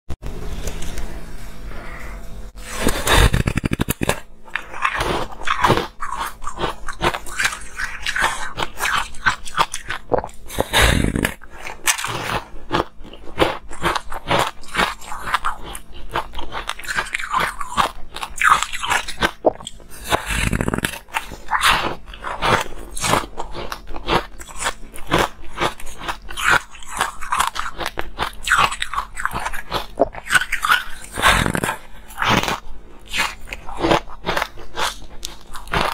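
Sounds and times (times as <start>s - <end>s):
crunchy ice chewing: 2.7s - 35.9s.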